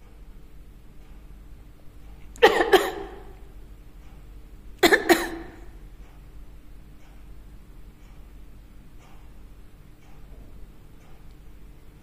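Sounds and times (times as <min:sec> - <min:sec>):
person coughing: 0:02.4 - 0:03.4, 0:04.8 - 0:05.8.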